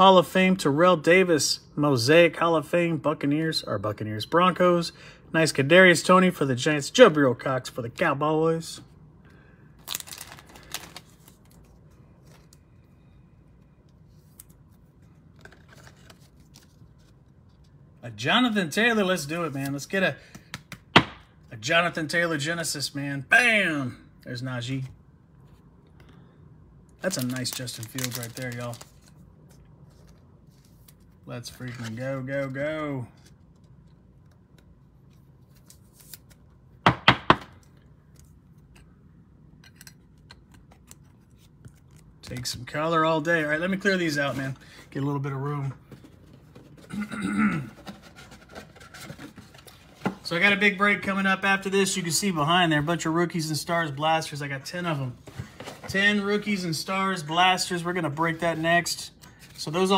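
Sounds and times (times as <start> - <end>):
low steady hum: 0.0 - 59.9
cards clicking and rustling: 14.2 - 17.7, 27.1 - 32.6.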